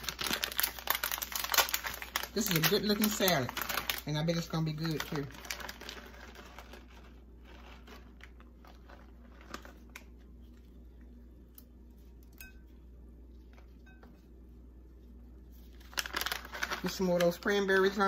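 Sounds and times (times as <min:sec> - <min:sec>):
plastic bag rustling: 0:00.0 - 0:10.8, 0:15.4 - 0:18.0
steady low hum: 0:00.0 - 0:18.0.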